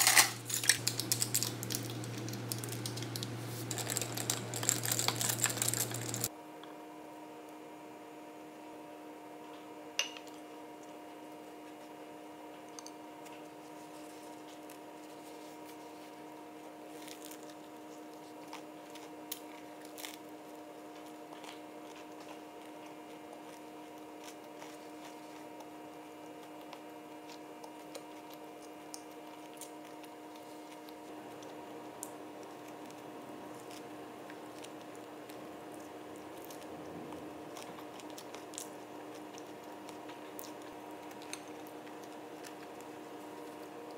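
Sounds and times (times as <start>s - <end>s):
low hum: 0.0s - 6.3s
chewing and mouth clicks: 20.9s - 43.9s.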